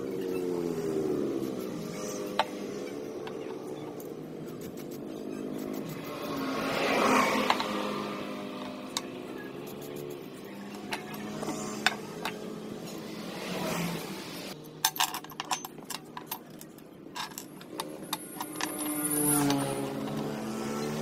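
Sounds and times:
light metal clicks and clinks: 0:14.6 - 0:20.2.

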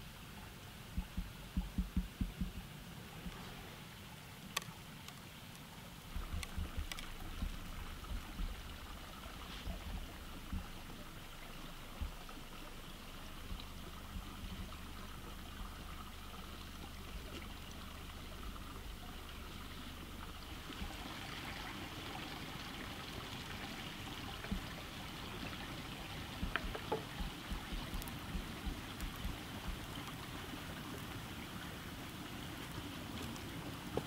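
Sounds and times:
stream trickling over stones: 0:00.0 - 0:34.0
soft low thumps: 0:00.9 - 0:03.4, 0:06.1 - 0:21.0, 0:24.4 - 0:24.8, 0:26.2 - 0:30.1
faint clicks: 0:04.5 - 0:20.0, 0:26.4 - 0:30.2.

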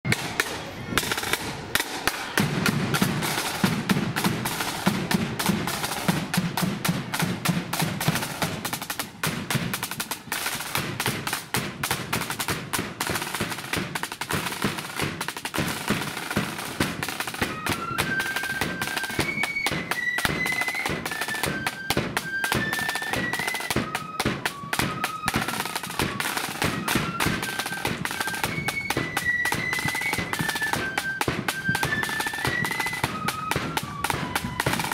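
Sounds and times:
snare and bass drums marching rhythm: 0:00.0 - 0:34.9
flutes playing high melody: 0:15.8 - 0:34.9.

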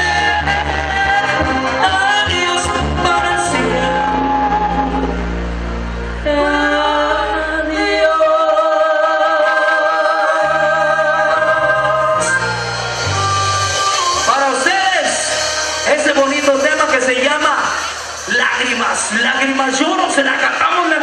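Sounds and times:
man singing: 0:00.0 - 0:05.2, 0:10.4 - 0:17.6
latin band playing: 0:00.0 - 0:09.0, 0:10.1 - 0:21.0.

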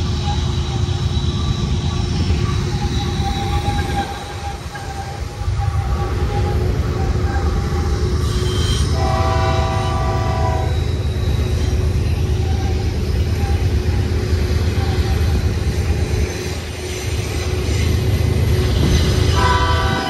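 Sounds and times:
freight train rumbling: 0:00.0 - 0:20.0
locomotive air horn: 0:02.7 - 0:10.9, 0:19.3 - 0:20.0.

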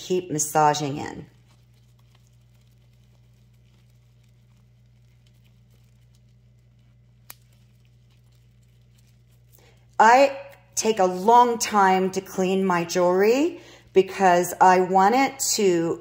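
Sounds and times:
soapy fingers squishing: 0:00.0 - 0:11.0
steady low hum: 0:00.0 - 0:16.0.

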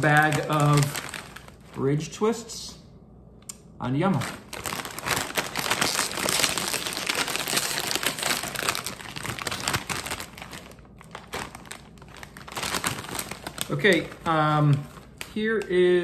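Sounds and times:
chip bag crinkling: 0:00.0 - 0:02.1, 0:04.1 - 0:16.0.

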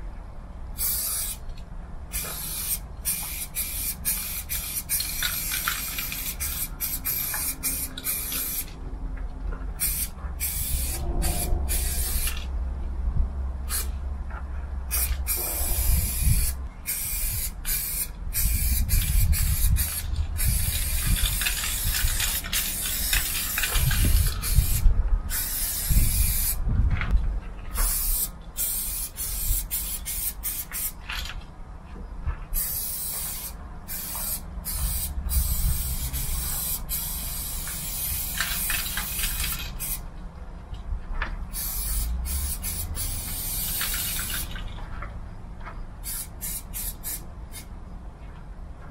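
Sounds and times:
spray paint can hissing: 0:00.8 - 0:01.4, 0:02.1 - 0:08.8, 0:09.8 - 0:12.5, 0:13.7 - 0:13.9, 0:14.9 - 0:26.6, 0:27.7 - 0:31.0, 0:32.6 - 0:40.0, 0:41.5 - 0:44.6, 0:46.0 - 0:47.7
low rumble: 0:06.4 - 0:27.9.

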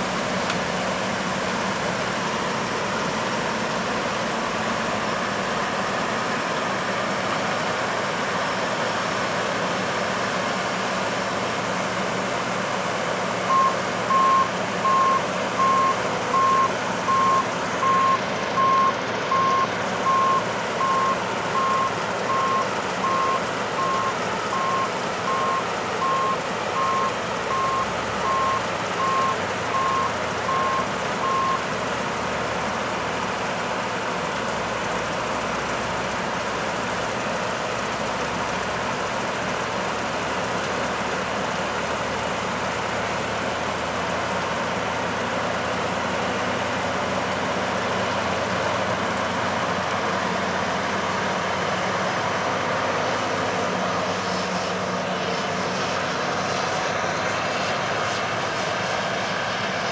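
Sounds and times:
combine harvester running: 0:00.0 - 0:59.9
electronic warning beeper: 0:13.5 - 0:31.7.

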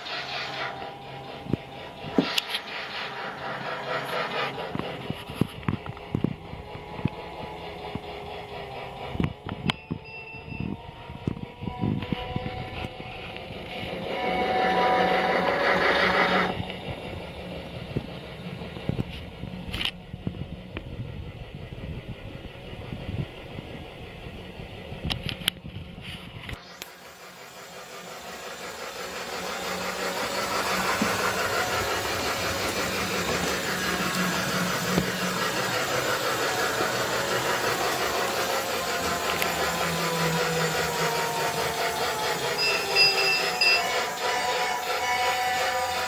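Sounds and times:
toy train motor whirring: 0:00.0 - 0:16.8, 0:26.3 - 0:46.0
wheels rattling over track: 0:00.0 - 0:46.0
brief high tone: 0:42.6 - 0:44.0.

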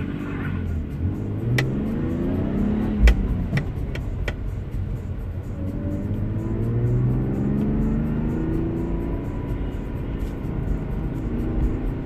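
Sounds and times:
car engine accelerating: 0:00.0 - 0:12.0.

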